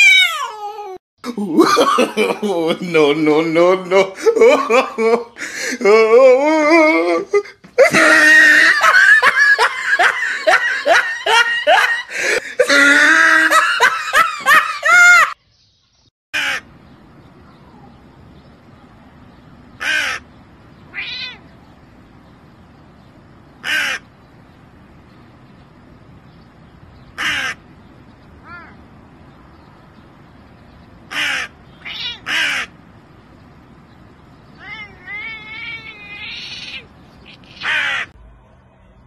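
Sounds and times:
high-pitched yelping vocal sounds: 0.0s - 1.0s, 34.6s - 38.2s
crow cawing: 16.4s - 16.7s, 19.8s - 20.3s, 23.6s - 24.1s, 27.2s - 27.6s, 31.1s - 32.8s, 34.6s - 38.1s.

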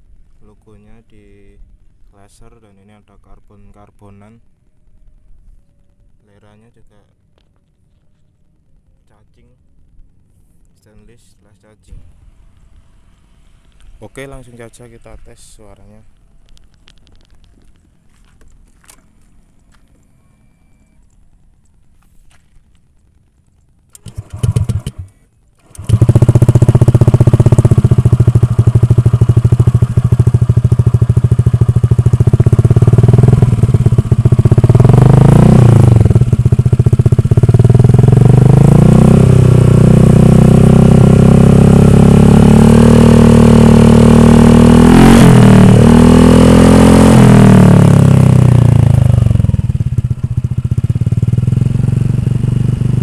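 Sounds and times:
scooter engine idling and revving: 23.9s - 53.0s.

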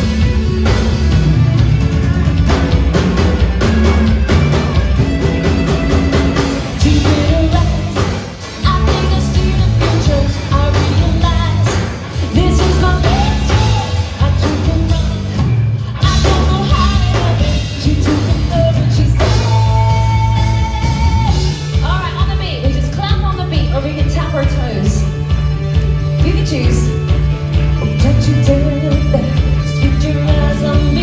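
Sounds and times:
live rock band playing: 0.0s - 31.0s
person singing: 6.8s - 22.0s, 27.8s - 31.0s.

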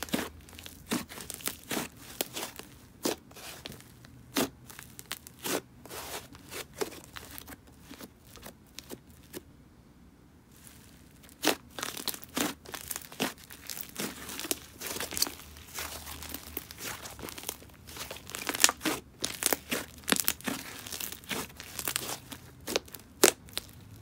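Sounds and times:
hands squishing sticky slime: 0.0s - 9.4s, 10.5s - 24.0s
slime popping: 11.3s - 23.8s.

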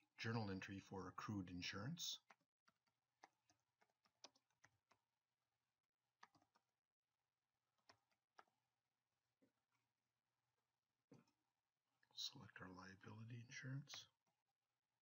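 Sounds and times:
faint computer keyboard typing: 2.2s - 5.1s, 6.2s - 6.7s, 7.8s - 8.6s.

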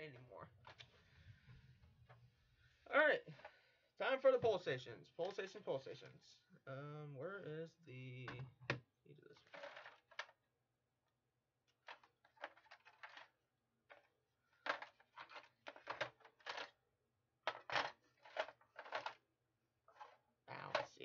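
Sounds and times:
plastic devices clattering in crate: 9.4s - 10.3s, 11.9s - 13.3s, 13.9s - 16.8s, 17.5s - 19.2s.

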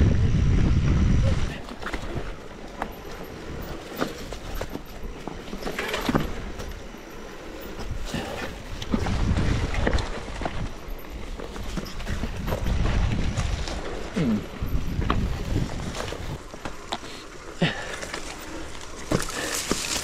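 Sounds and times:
wind on microphone: 0.0s - 2.4s, 7.8s - 10.9s, 11.6s - 16.4s
bike tyre noise: 0.0s - 20.0s
bike knocks and rattles: 1.7s - 20.0s.

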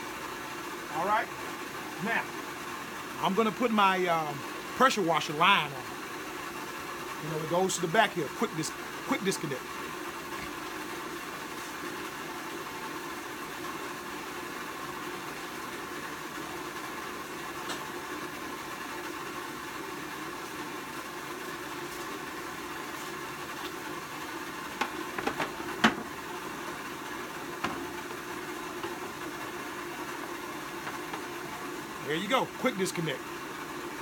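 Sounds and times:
steady mechanical hum: 0.0s - 34.0s
hose knocking and clattering: 24.8s - 26.1s, 27.6s - 28.0s.

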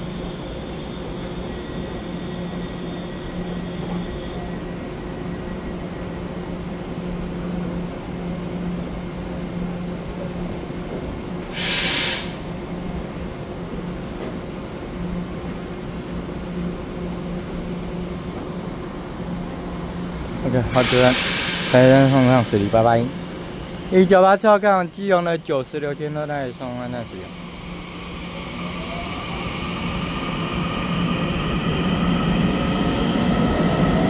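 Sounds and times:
train equipment humming: 0.0s - 34.0s
compressed air hiss: 11.5s - 12.6s, 20.7s - 23.9s
faint steady whines: 12.3s - 20.7s, 21.7s - 34.0s.

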